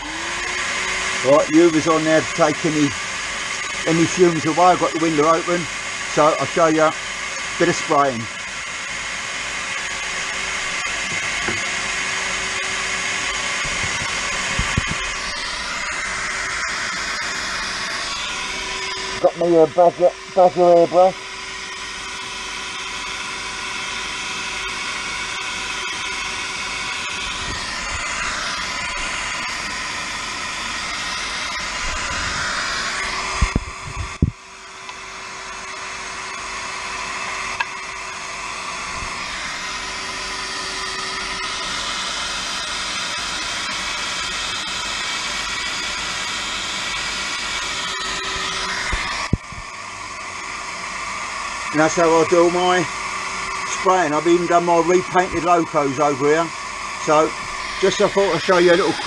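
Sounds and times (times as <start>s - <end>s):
vacuum cleaner whining: 0.0s - 59.0s
airbrush hissing: 9.5s - 21.1s, 26.6s - 34.3s, 57.0s - 59.0s.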